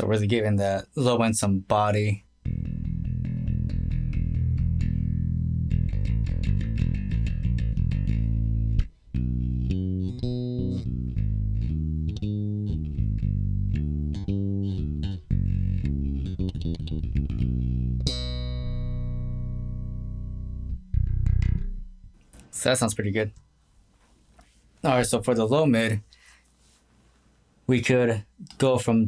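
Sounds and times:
electric bass notes: 0:02.0 - 0:22.2.

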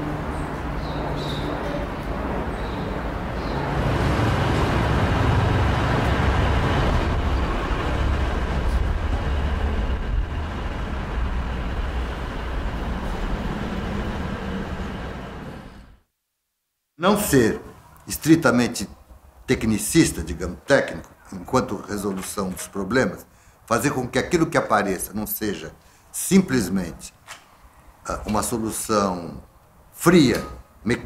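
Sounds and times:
street traffic rumble: 0:00.0 - 0:16.0
vehicle passing by: 0:00.0 - 0:16.0.

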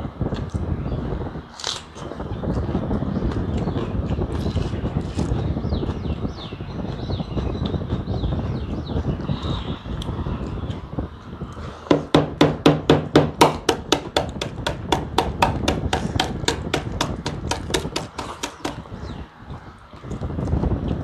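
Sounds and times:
rapid sharp knocks: 0:11.9 - 0:18.8.

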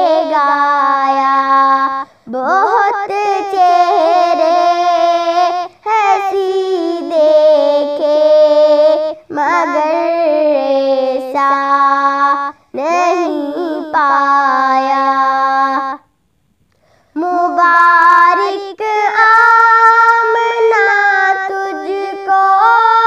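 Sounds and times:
girl singing unaccompanied: 0:00.0 - 0:16.2, 0:16.8 - 0:23.0
quick breaths: 0:16.6 - 0:17.2.

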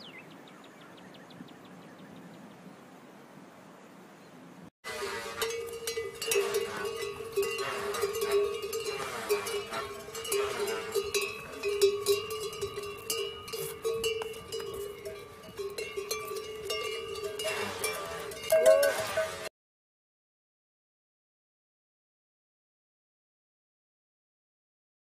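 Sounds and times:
animal bells clanging: 0:04.9 - 0:19.5.

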